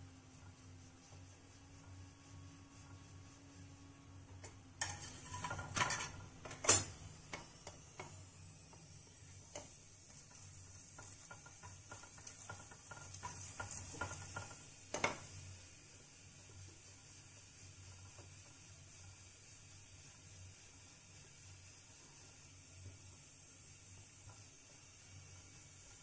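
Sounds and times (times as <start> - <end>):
metal spatula scraping iron pan: 4.8 - 7.0.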